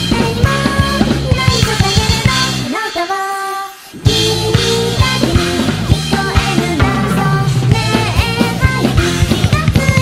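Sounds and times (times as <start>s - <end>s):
drum kit kick and snare hits: 4.1s - 10.0s.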